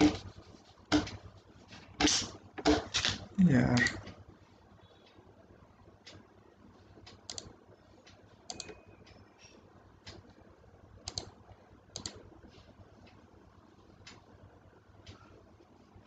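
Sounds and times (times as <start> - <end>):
mouse and keyboard clicking: 8.5 - 8.8, 11.1 - 11.3, 12.0 - 12.2.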